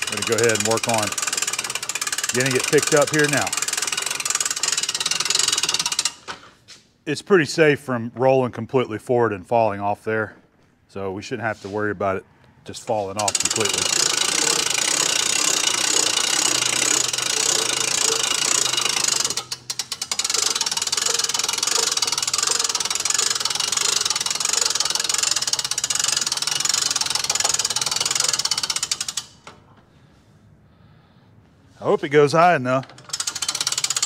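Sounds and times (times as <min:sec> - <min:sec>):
hand-cranked winch clicking: 0:00.0 - 0:06.5, 0:13.1 - 0:29.6, 0:32.5 - 0:34.0.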